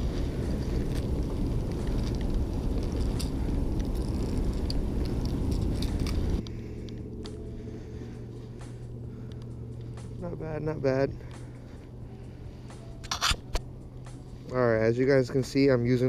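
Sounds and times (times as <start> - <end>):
wind buffeting microphone: 0.0 - 6.5
low hum: 0.0 - 16.0
hooks clicking and rattling: 1.8 - 7.0, 13.0 - 13.6.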